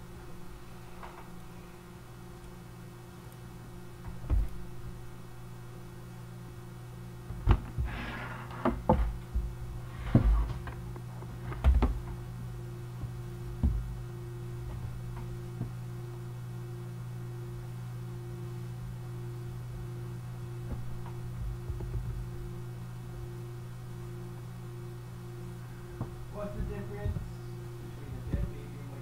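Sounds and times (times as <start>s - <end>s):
steady low hum: 0.0s - 29.0s
sharp knocks and thumps: 8.6s - 10.7s, 11.5s - 12.1s, 13.0s - 13.9s, 26.0s - 27.4s.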